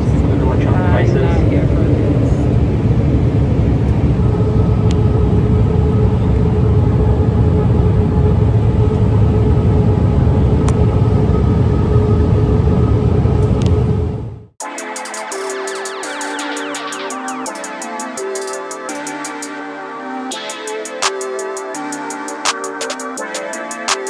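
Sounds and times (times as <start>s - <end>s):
engine and airflow rumble: 0.0s - 14.6s
steady hum: 0.0s - 24.0s.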